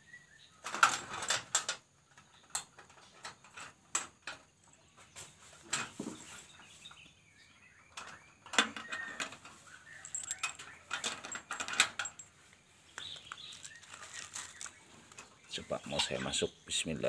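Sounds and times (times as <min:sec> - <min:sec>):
wire-mesh door rattling: 0:00.6 - 0:04.8, 0:07.9 - 0:12.4
metal latch clicking: 0:10.0 - 0:12.3.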